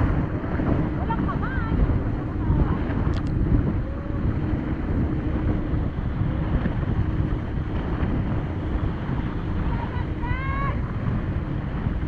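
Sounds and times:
water rushing past boat: 0.0s - 12.0s
wind buffeting microphone: 0.0s - 12.0s.

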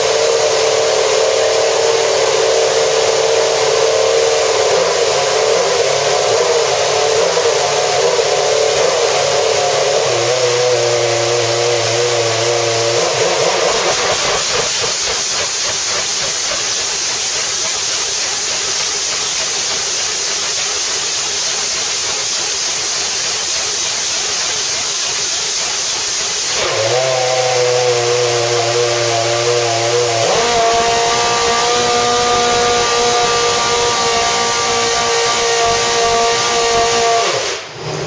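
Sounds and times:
loud hissing rush: 0.0s - 38.0s.

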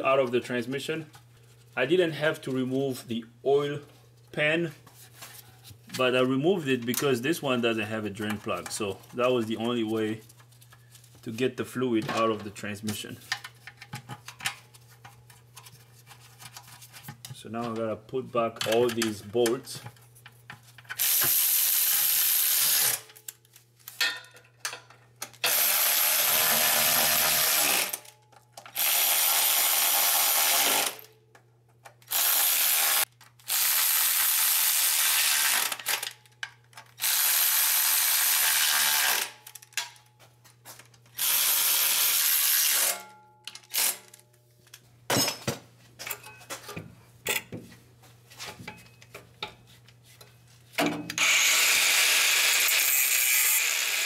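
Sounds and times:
power tool driving bolts: 20.9s - 23.1s, 25.4s - 31.1s, 32.1s - 36.2s, 37.0s - 39.6s, 41.2s - 43.0s, 43.6s - 44.0s, 51.1s - 54.0s.

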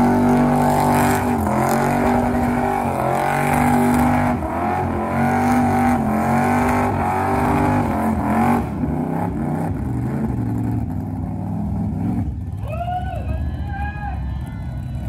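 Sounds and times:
van engine revving hard: 0.0s - 10.5s.

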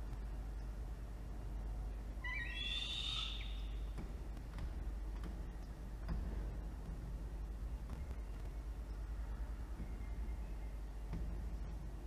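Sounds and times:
falcon call: 2.2s - 3.8s.

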